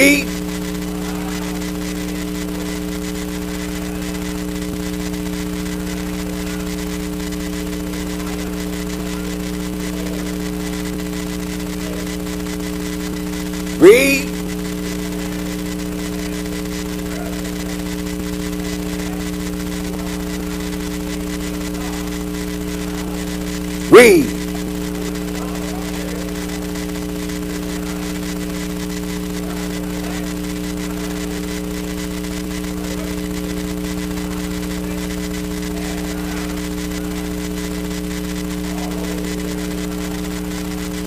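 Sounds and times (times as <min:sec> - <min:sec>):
person's loud vocal exclamation: 0:00.0 - 0:00.3, 0:13.8 - 0:14.3, 0:23.9 - 0:24.4
electrical mains hum: 0:00.0 - 0:41.0.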